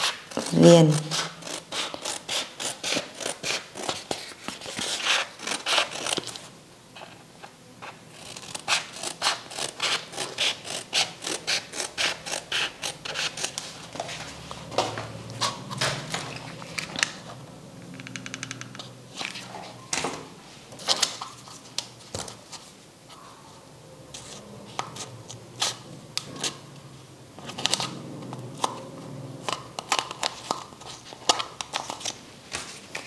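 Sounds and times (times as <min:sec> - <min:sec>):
scissors snipping foam: 0:00.0 - 0:06.4, 0:08.2 - 0:13.6.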